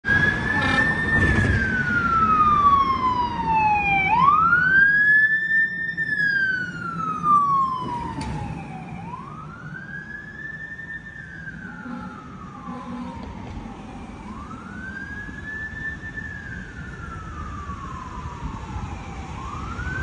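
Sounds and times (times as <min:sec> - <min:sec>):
fire engine siren wailing: 0:00.0 - 0:20.0.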